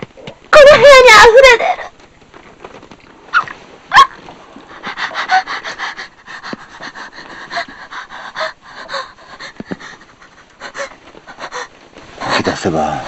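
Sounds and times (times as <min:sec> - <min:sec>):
person panting: 0:04.7 - 0:12.4.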